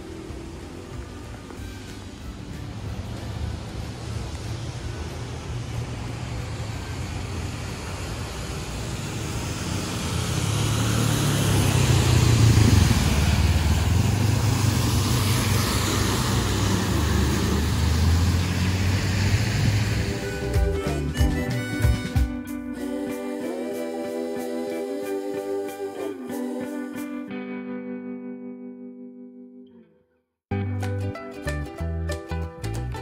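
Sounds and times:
river water rushing: 0.0s - 20.8s.

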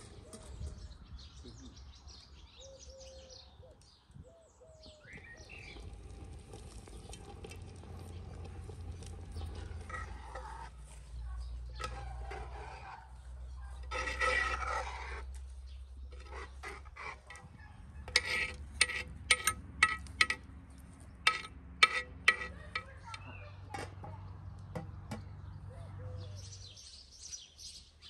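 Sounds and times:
songbirds chirping: 0.0s - 28.0s
low steady rumble: 5.5s - 23.3s.

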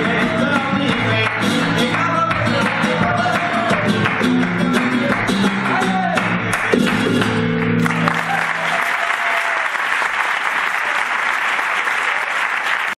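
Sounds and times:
audience applause: 7.6s - 13.0s.

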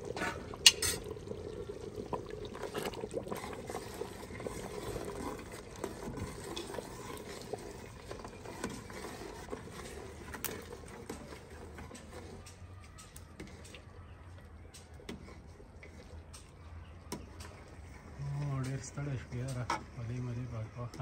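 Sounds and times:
ladle scraping a pot: 0.0s - 13.8s, 15.0s - 16.2s, 17.1s - 21.0s
stew bubbling: 0.0s - 21.0s
ladle clinking against pot: 0.6s - 1.1s.

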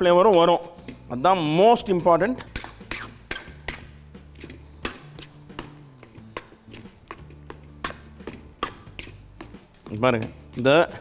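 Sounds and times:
faint background music with bass: 0.0s - 11.0s.

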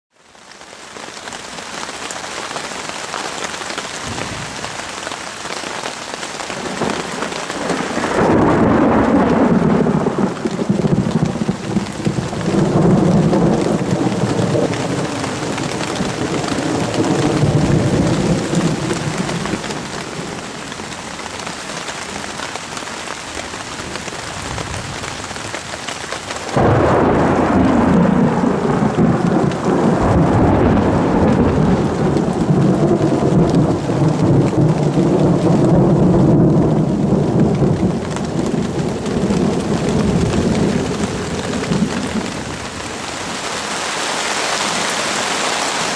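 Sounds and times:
rain hissing: 0.2s - 45.9s
thunder rumbling: 6.5s - 21.0s, 26.5s - 43.4s.

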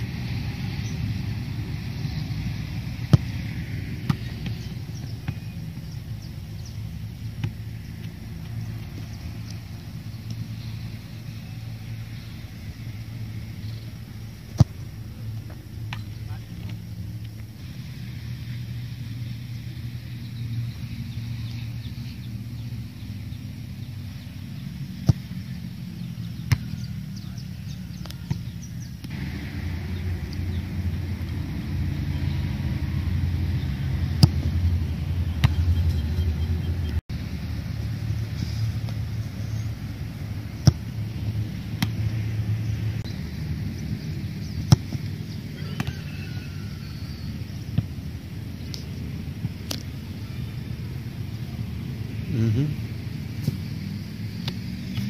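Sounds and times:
birds chirping: 0.0s - 37.0s, 37.6s - 55.0s
steady low rumble: 0.0s - 55.0s
boot kicking a football: 3.0s - 3.4s, 14.5s - 14.9s
football kicked: 3.0s - 5.9s, 14.4s - 16.8s, 25.0s - 25.4s, 26.4s - 26.9s, 34.1s - 34.5s, 40.6s - 41.0s, 44.6s - 45.2s.

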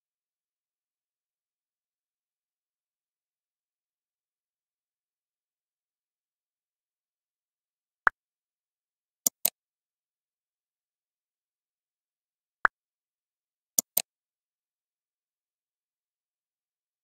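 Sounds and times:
quick clicks: 13.8s - 14.1s.

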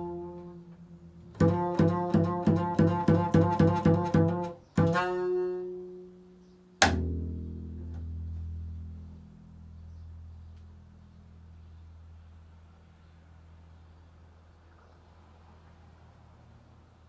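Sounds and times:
double bass plucked: 0.0s - 14.3s
hard pluck with sharp snap: 0.2s - 5.9s, 6.8s - 9.5s.

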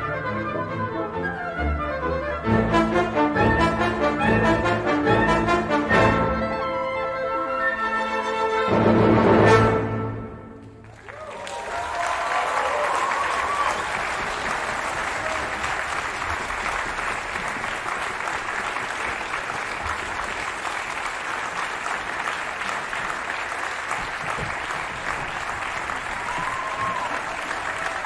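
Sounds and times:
audience applauding: 10.6s - 28.0s.

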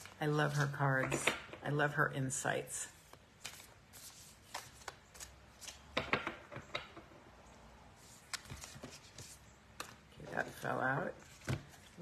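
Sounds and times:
cards being shuffled: 3.0s - 6.6s, 8.0s - 10.6s.

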